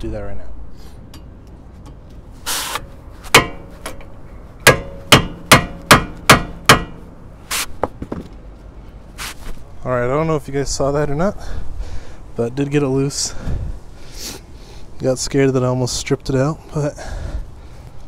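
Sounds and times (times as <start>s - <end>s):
hammer striking metal: 3.3s - 7.1s.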